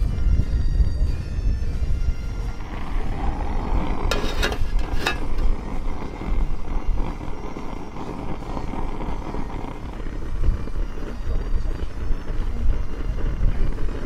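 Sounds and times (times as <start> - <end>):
wind buffeting microphone: 0.0 - 14.0
metal tin clinking on stove: 4.1 - 5.6.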